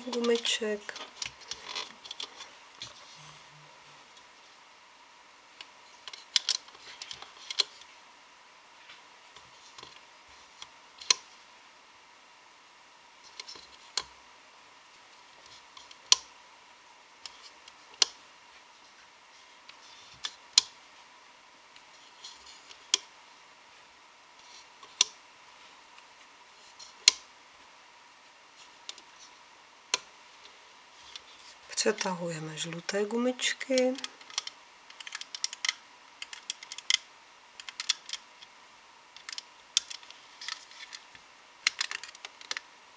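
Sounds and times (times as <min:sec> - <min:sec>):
plastic loom bands clicking: 0:05.6 - 0:07.8, 0:33.5 - 0:38.3, 0:39.2 - 0:41.0, 0:41.6 - 0:42.6.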